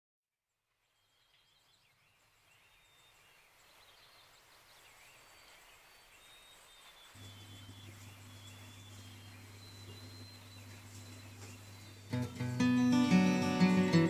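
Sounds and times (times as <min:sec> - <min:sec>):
faint hiss: 0:00.7 - 0:14.0
faint wavering high chirps: 0:05.2 - 0:14.0.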